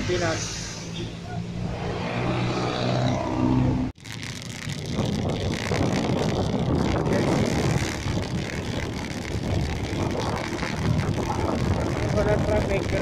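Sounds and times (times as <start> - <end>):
vehicle rumbling on wet street: 0.0 - 13.0
wind buffeting microphone: 4.2 - 13.0.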